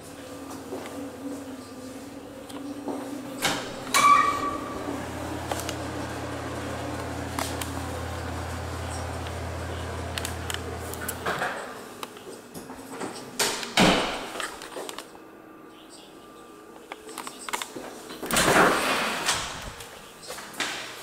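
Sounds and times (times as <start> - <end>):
exhaust fan humming: 0.0 - 12.8
door squeak: 3.4 - 5.0.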